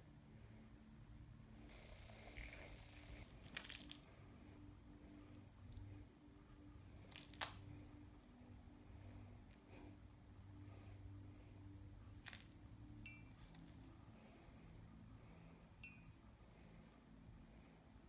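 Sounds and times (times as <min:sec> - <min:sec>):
faint steady hum: 0:00.0 - 0:18.0
high metallic clinks: 0:13.0 - 0:13.6, 0:15.8 - 0:16.2.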